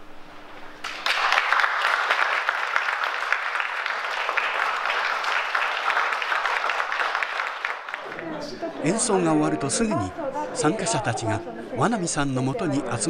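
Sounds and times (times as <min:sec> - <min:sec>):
audience applause: 0:00.8 - 0:08.6.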